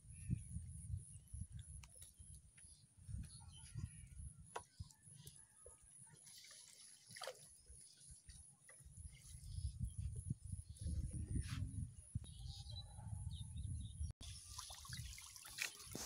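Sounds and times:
water dripping and trickling: 14.2 - 16.0.

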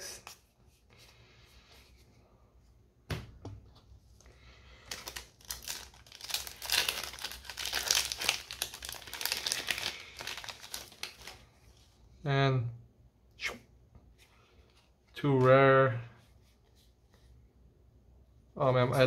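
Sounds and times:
wrapper crinkling and tearing: 4.8 - 11.5.

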